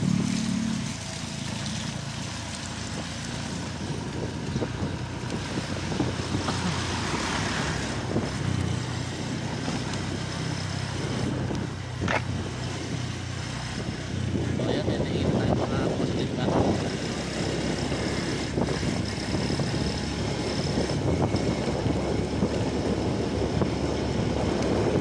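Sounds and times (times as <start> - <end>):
motorcycle engine running: 0.0 - 25.0
road noise: 0.0 - 25.0
wind buffeting microphone: 2.8 - 25.0
vehicle passing: 5.2 - 25.0.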